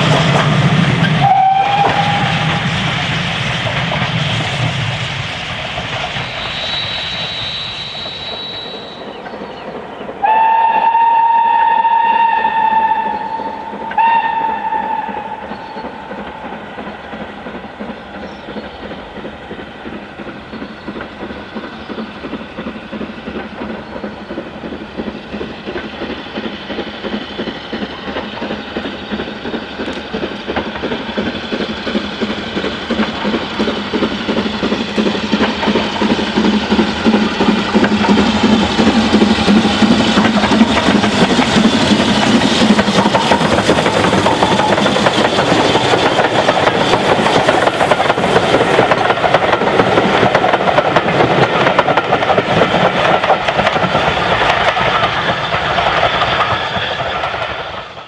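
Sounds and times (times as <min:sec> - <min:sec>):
steam locomotive exhaust beats: 0:00.0 - 0:58.0
steam whistle blasts: 0:01.1 - 0:02.7, 0:06.4 - 0:09.1, 0:10.2 - 0:16.0.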